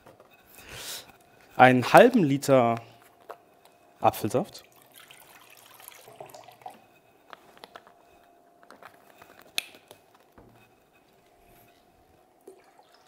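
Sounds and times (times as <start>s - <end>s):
juice pouring into jug: 4.6s - 6.9s.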